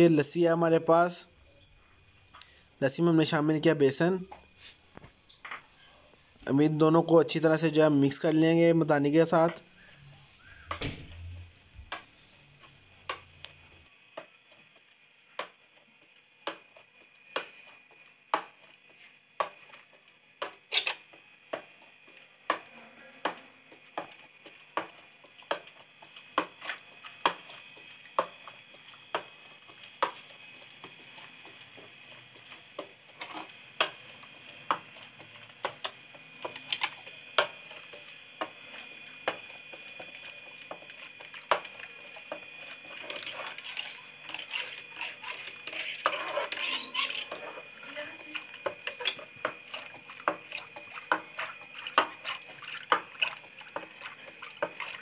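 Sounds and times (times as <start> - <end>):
whisk knocking against metal pot: 22.4 - 55.0.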